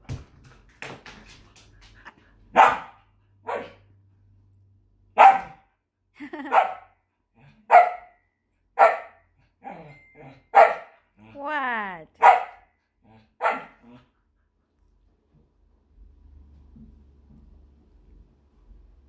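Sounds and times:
dog barking: 0:02.5 - 0:03.9, 0:05.2 - 0:05.7, 0:06.4 - 0:07.0, 0:07.7 - 0:08.2, 0:08.8 - 0:09.8, 0:10.5 - 0:11.0, 0:12.2 - 0:12.8, 0:13.4 - 0:13.8.

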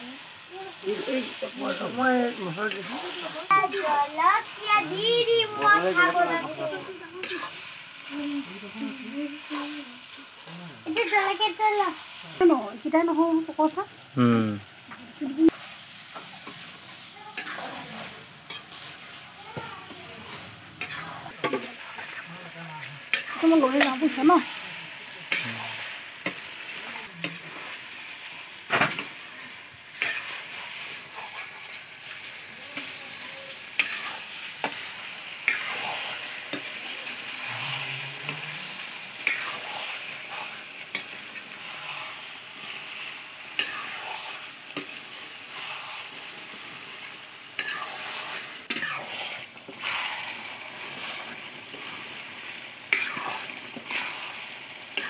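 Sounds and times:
curry sizzling in a wok: 0:00.0 - 0:55.0
metal spatula scraping pan: 0:05.0 - 0:07.6, 0:16.4 - 0:19.2, 0:19.8 - 0:22.2, 0:30.0 - 0:32.2, 0:32.8 - 0:42.8, 0:43.5 - 0:46.6, 0:47.6 - 0:52.0.

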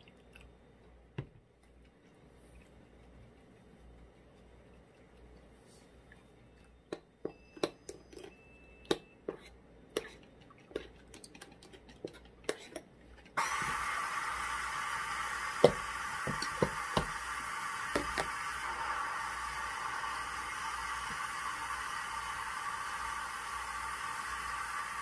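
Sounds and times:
loud steady hiss: 0:13.4 - 0:25.0.

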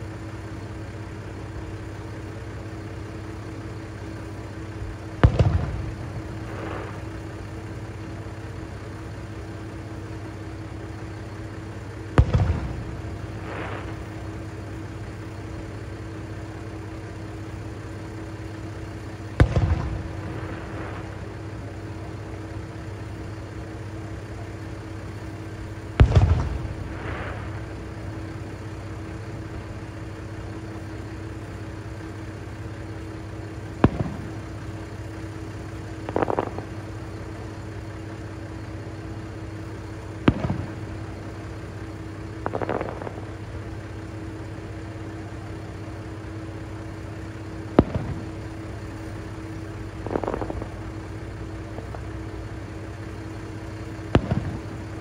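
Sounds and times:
diesel railcar idling: 0:00.0 - 0:55.0
distant fireworks booms: 0:00.8 - 0:55.0
fireworks hiss: 0:05.1 - 0:08.2, 0:11.9 - 0:16.8, 0:18.6 - 0:23.7, 0:25.4 - 0:31.9, 0:32.8 - 0:55.0.

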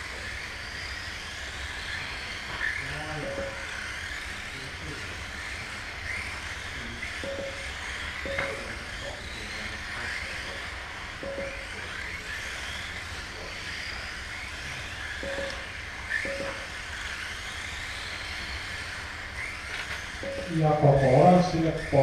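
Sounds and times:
electric toy car motors whining: 0:00.0 - 0:22.0
short beeps: 0:03.2 - 0:03.7, 0:07.2 - 0:08.7, 0:11.2 - 0:11.8, 0:15.2 - 0:16.7, 0:20.2 - 0:20.8.

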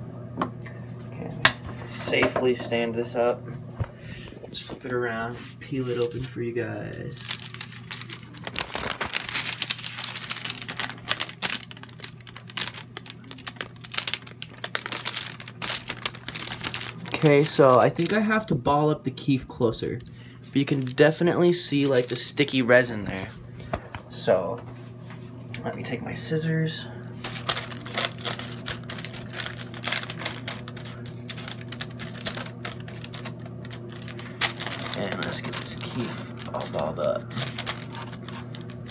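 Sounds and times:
steady low hum: 0:00.0 - 0:38.9
paper crinkling and crackling: 0:05.7 - 0:18.5, 0:19.6 - 0:23.3, 0:27.2 - 0:38.9.

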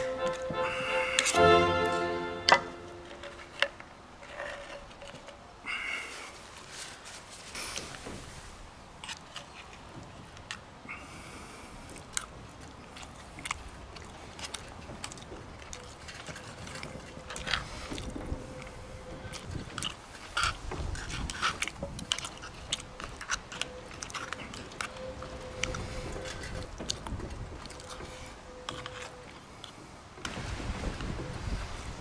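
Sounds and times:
person chewing: 0:00.0 - 0:03.7, 0:11.9 - 0:29.8.

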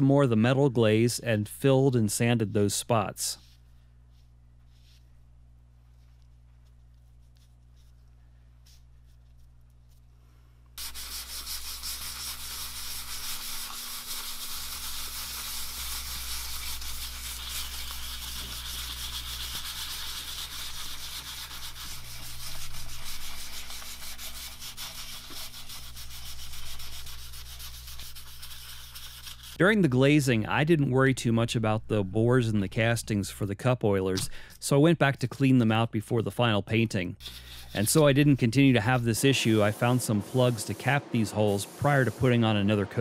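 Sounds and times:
sandpaper scratching on filler: 0:10.8 - 0:29.6, 0:37.2 - 0:43.0.

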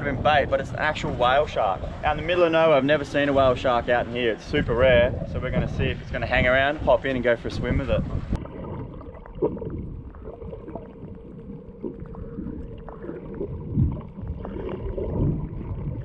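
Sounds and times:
water sloshing underwater: 0:00.0 - 0:16.0
faint steady hum: 0:08.1 - 0:16.0.

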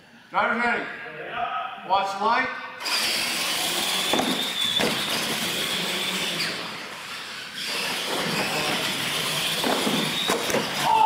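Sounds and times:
toy truck motors whining: 0:02.8 - 0:11.0.

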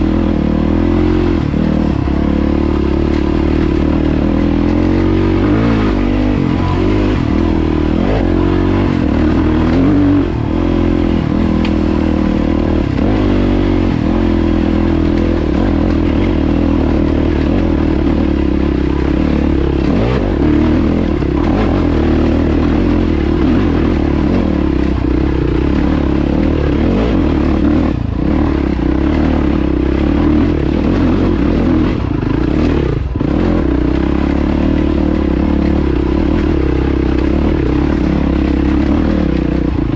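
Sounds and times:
motorcycle engine running under load: 0:00.0 - 0:39.9.

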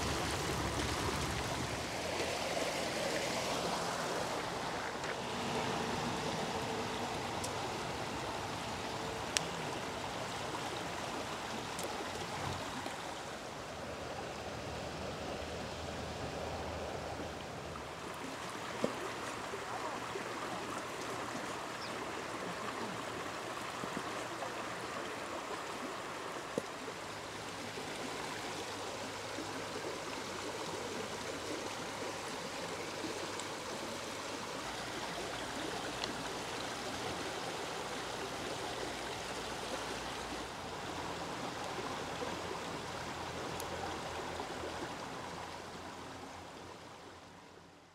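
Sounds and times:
stream rushing over stones: 0:00.0 - 0:47.9.

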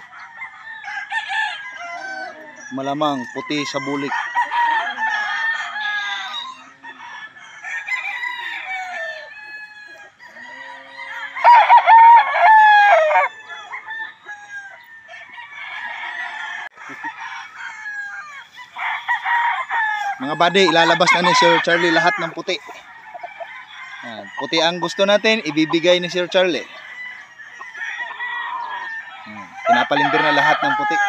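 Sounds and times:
roosters crowing: 0:00.0 - 0:31.0.

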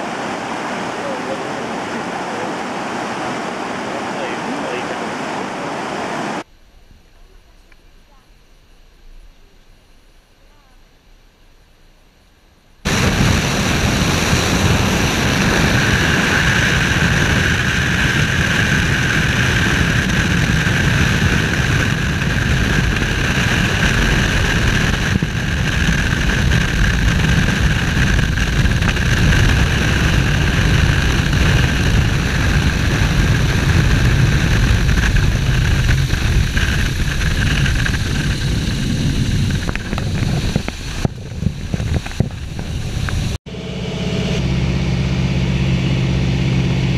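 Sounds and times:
plane engine and propeller drone: 0:00.0 - 0:46.9.

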